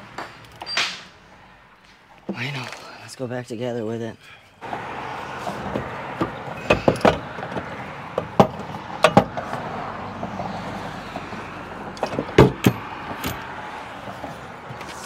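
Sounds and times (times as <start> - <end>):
steady background noise: 0.0 - 15.0
metal clanks and knocks: 5.7 - 9.6, 12.0 - 13.5.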